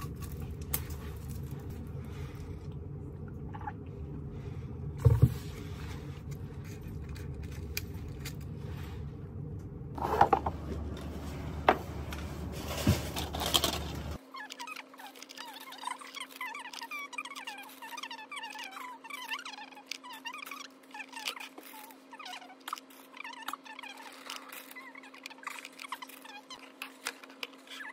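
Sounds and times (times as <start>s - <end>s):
steady low hum: 0.0s - 14.3s
objects clicking and scraping: 11.7s - 18.8s.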